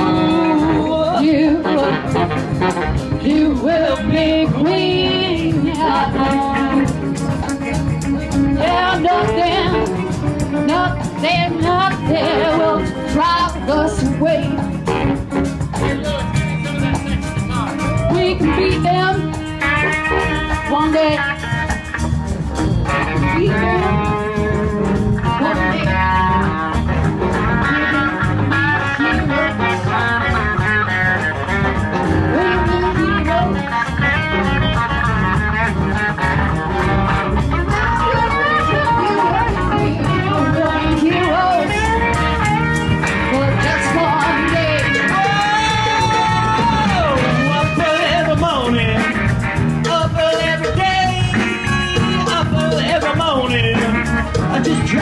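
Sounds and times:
saxophones: 0:00.0 - 0:07.0, 0:08.2 - 0:21.6
person singing: 0:00.0 - 0:15.0, 0:23.1 - 0:30.3, 0:32.0 - 0:34.0, 0:37.6 - 0:55.0
live band playing: 0:00.0 - 0:55.0.

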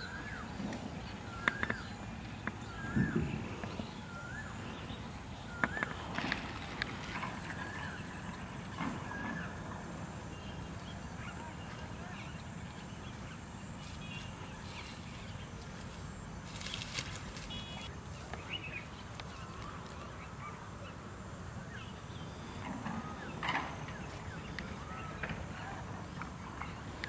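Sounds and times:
bird chirps: 0:00.0 - 0:06.4.

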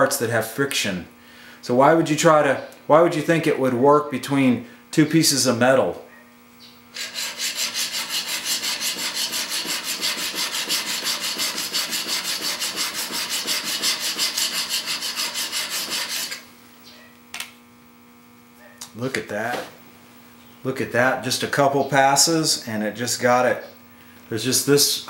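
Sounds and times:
chisel rasping on sharpening plate: 0:07.0 - 0:16.4.

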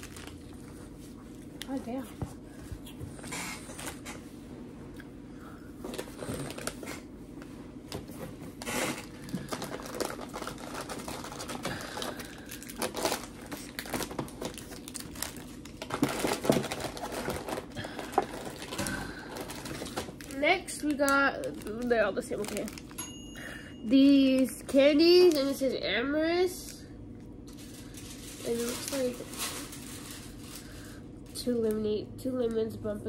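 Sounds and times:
plastic wrappers crinkling: 0:00.0 - 0:02.1, 0:05.8 - 0:07.1, 0:08.6 - 0:23.2, 0:23.9 - 0:26.8, 0:27.4 - 0:31.9.

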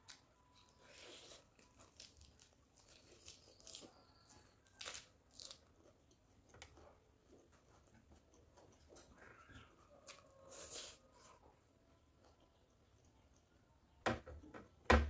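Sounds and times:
chewing crisp lettuce: 0:00.0 - 0:09.1, 0:10.0 - 0:11.4.

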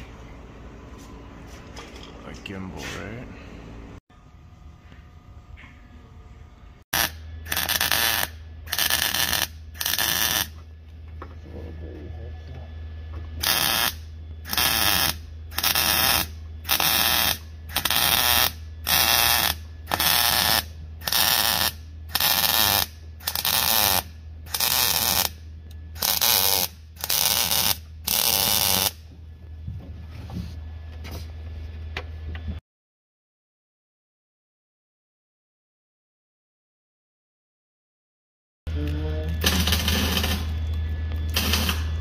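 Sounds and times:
steady low hum: 0:00.0 - 0:32.6, 0:38.7 - 0:42.0
welding arc bursts: 0:06.9 - 0:10.6, 0:13.4 - 0:25.4, 0:26.0 - 0:29.0, 0:39.4 - 0:40.6, 0:41.3 - 0:42.0.

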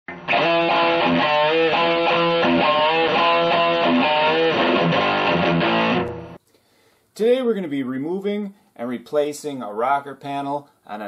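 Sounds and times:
electric guitar intro music: 0:00.1 - 0:06.4.

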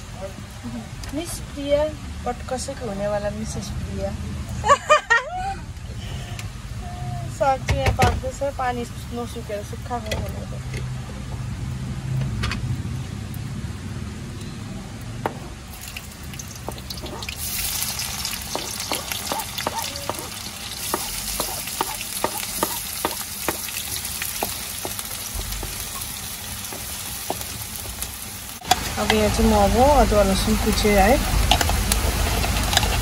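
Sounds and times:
onions sizzling in hot oil: 0:15.6 - 0:33.0.

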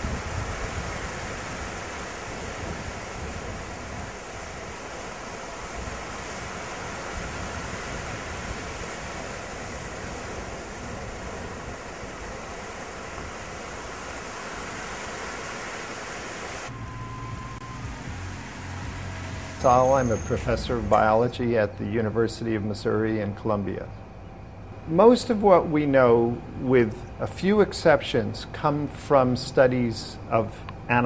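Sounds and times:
ocean surf on a beach: 0:00.0 - 0:23.7, 0:24.8 - 0:31.0
low steady hum: 0:00.0 - 0:31.0.

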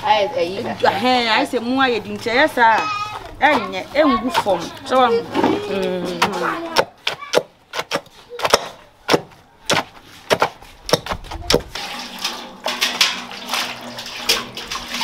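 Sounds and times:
pestles pounding in mortars: 0:06.2 - 0:11.8.

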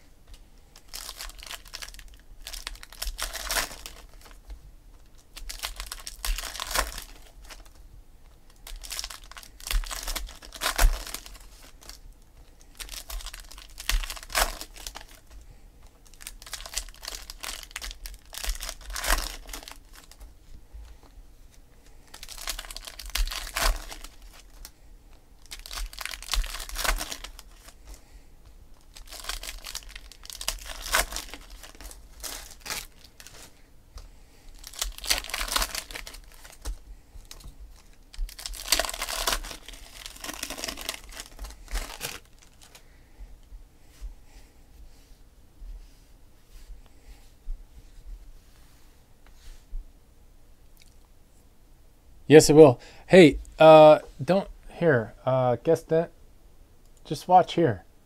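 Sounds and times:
foil wrappers crinkling and tearing: 0:00.8 - 0:04.4, 0:05.1 - 0:07.8, 0:08.5 - 0:12.0, 0:12.6 - 0:20.3, 0:21.8 - 0:24.8, 0:25.4 - 0:28.0, 0:28.7 - 0:33.6, 0:34.4 - 0:42.8.

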